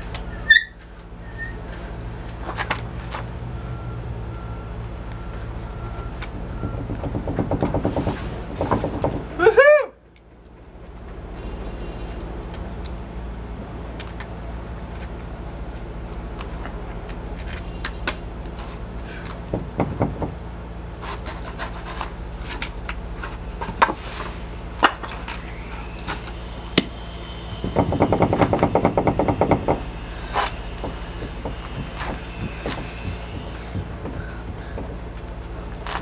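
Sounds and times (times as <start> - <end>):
knocks and clanks on rudder: 6.2 - 9.4, 19.3 - 20.4, 27.6 - 35.2.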